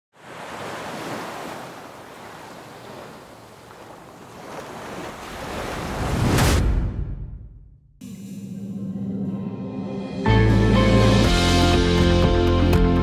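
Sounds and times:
surf washing over rocks: 0.2s - 6.4s.

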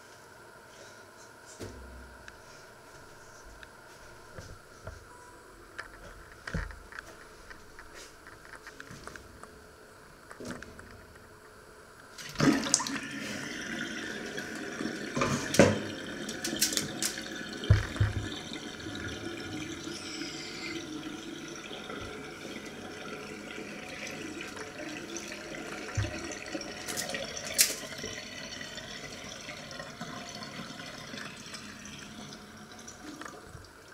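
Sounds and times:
water draining from sink: 12.2s - 33.9s.

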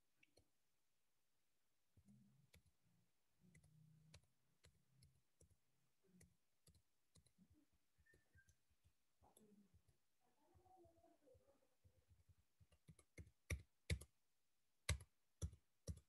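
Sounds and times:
computer mouse clicks: 3.5s - 5.5s, 6.2s - 7.4s, 12.7s - 14.1s.

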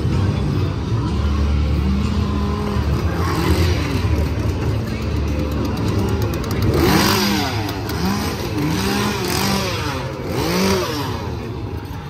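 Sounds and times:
small engine revving: 5.6s - 11.9s.

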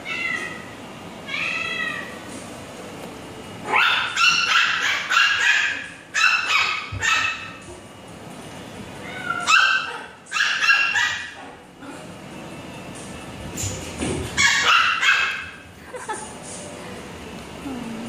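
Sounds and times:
puppy yipping: 3.7s - 7.6s, 9.1s - 11.5s, 14.4s - 15.6s.

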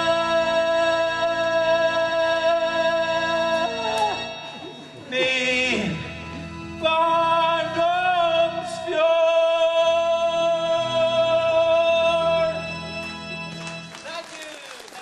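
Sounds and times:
man singing: 0.0s - 12.8s
instrumental accompaniment: 10.6s - 14.2s.

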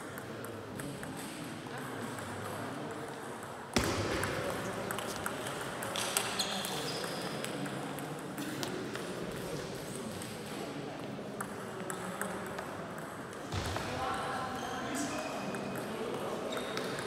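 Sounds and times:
table tennis ball hitting bats and table: 0.1s - 9.5s, 11.3s - 13.9s, 15.4s - 17.0s.

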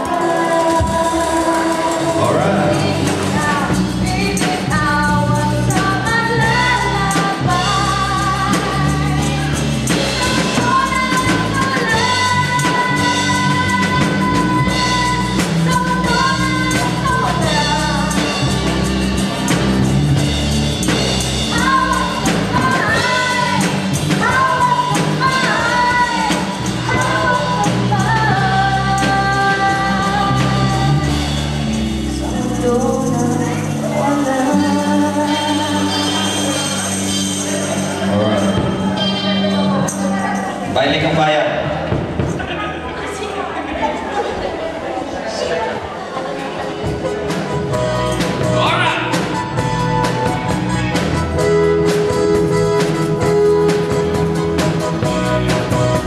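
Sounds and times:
woman singing into microphone: 0.0s - 18.3s, 21.5s - 31.4s, 32.1s - 36.9s
drum kit: 0.0s - 42.8s, 46.6s - 56.0s
bass guitar: 0.0s - 43.6s, 46.6s - 56.0s
guitar: 0.0s - 56.0s.

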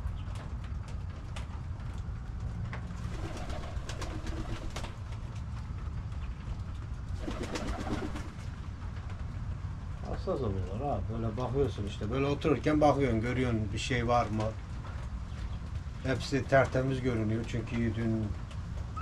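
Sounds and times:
pigeons cooing: 3.1s - 4.9s, 7.2s - 8.4s.

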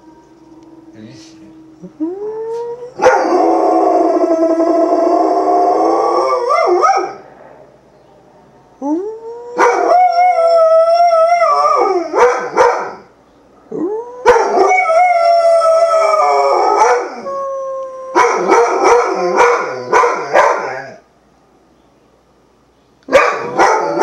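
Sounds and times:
dog howling: 0.0s - 7.2s, 8.8s - 13.1s, 13.7s - 21.0s, 23.1s - 24.0s
dog yowling barks: 2.9s - 3.6s, 6.1s - 7.2s, 9.5s - 10.2s, 11.5s - 13.1s, 14.2s - 15.2s, 16.5s - 17.3s, 18.1s - 21.0s, 23.1s - 24.0s.

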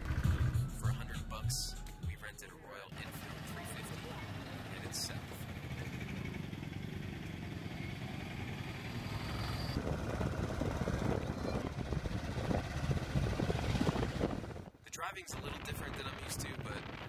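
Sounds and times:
motorcycle engine running: 0.0s - 1.0s, 3.0s - 14.7s.

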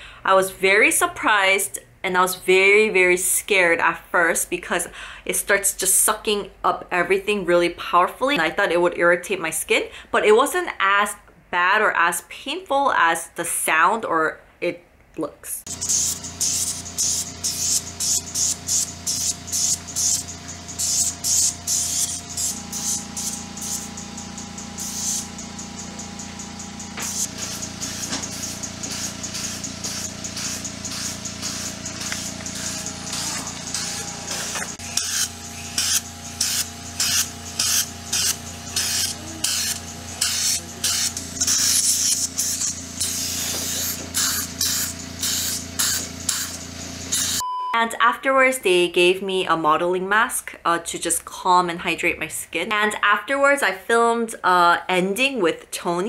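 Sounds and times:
suction wand hissing pulses: 15.7s - 47.4s.

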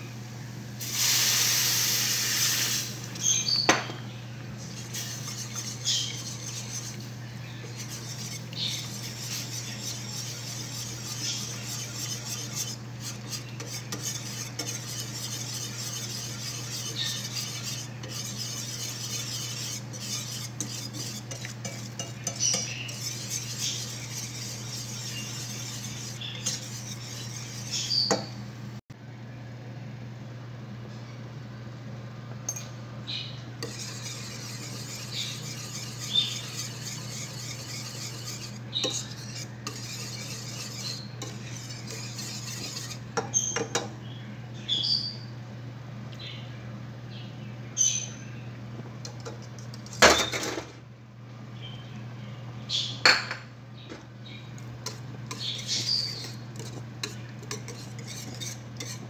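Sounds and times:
steady low hum: 0.0s - 59.0s
milk hissing on hot pan: 0.8s - 3.0s
whisk scraping in metal pan: 0.9s - 28.4s, 33.6s - 43.9s, 49.0s - 50.6s, 54.6s - 59.0s.

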